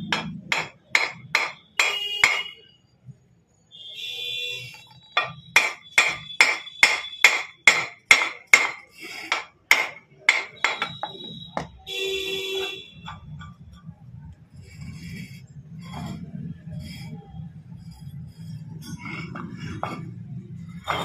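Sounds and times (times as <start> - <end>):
hammer striking metal: 0.0 - 2.6, 5.1 - 11.8.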